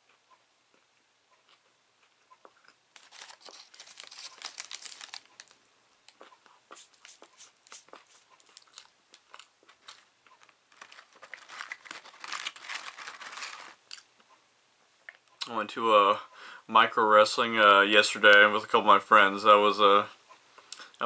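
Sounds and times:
crunching and chewing: 0.7 - 14.1
paper wrapper rustling: 3.0 - 5.6, 6.8 - 13.9.

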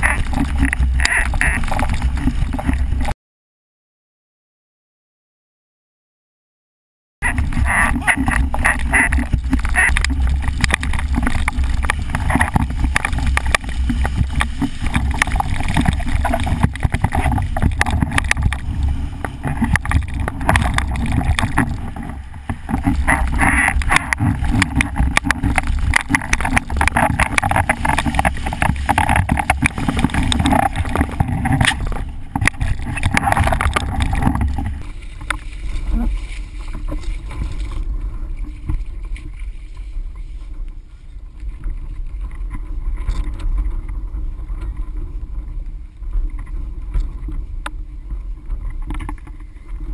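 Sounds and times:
wind rushing over camera: 0.0 - 3.1, 7.2 - 49.9
water spray hissing and slapping: 7.5 - 40.5.

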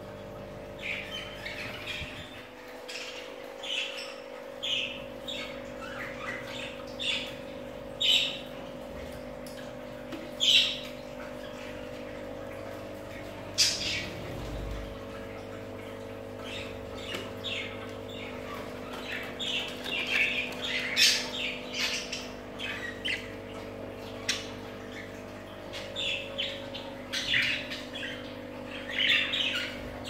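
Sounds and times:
budgerigars chirping and squawking: 0.8 - 8.6, 10.4 - 11.8, 13.5 - 14.9, 16.4 - 30.0.

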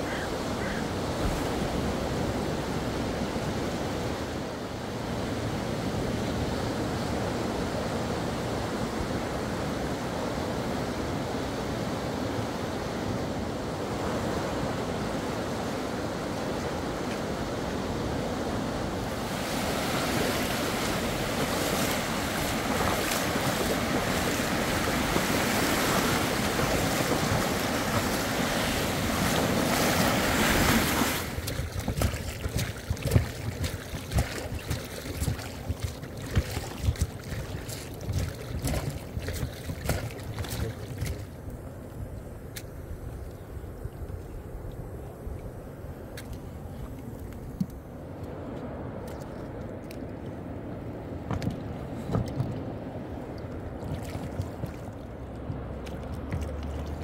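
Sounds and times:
sea waves breaking on shore: 0.0 - 43.0, 45.5 - 57.0
wind buffeting microphone: 13.4 - 49.0.

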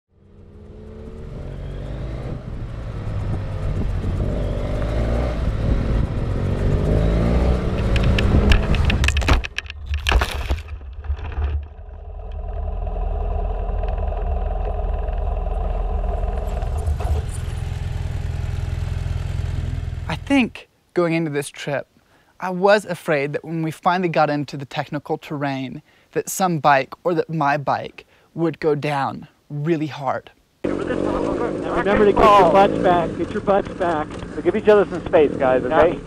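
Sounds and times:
off-road motorcycle engine revving: 0.1 - 9.2, 11.8 - 20.2, 30.6 - 36.0.

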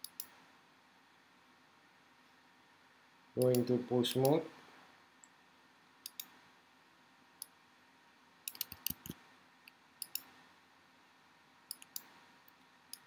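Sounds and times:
mouse and keyboard clicking: 0.0 - 0.4, 3.4 - 4.4, 6.0 - 6.4, 8.5 - 9.2, 10.0 - 10.3, 11.7 - 12.1.

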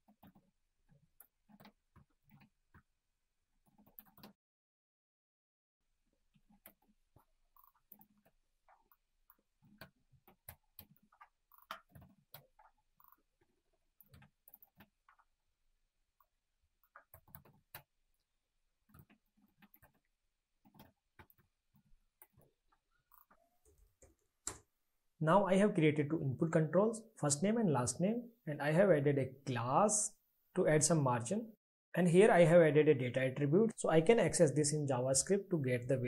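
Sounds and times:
faint keyboard typing: 3.6 - 4.4, 6.4 - 15.3, 16.2 - 18.2, 18.8 - 24.7.

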